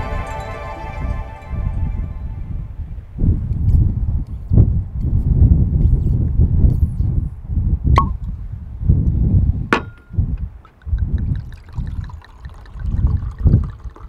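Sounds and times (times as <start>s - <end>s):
wind buffeting microphone: 0.0s - 14.0s
cork popping from bottle: 8.0s - 8.2s
glass clink: 9.8s - 10.2s
wine trickling and gurgling: 10.6s - 14.0s.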